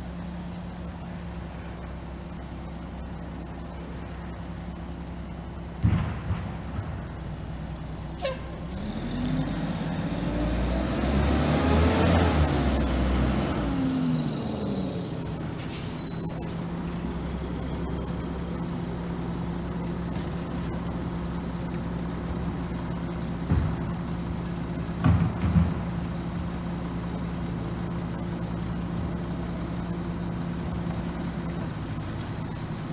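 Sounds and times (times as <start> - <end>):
diesel truck engine running: 0.0 - 32.9
vehicle driving past: 8.4 - 20.2
air brakes hissing: 14.7 - 16.8.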